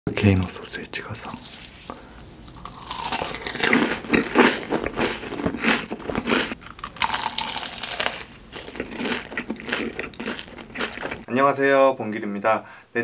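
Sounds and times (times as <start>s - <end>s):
crunchy chewing: 2.4s - 11.3s.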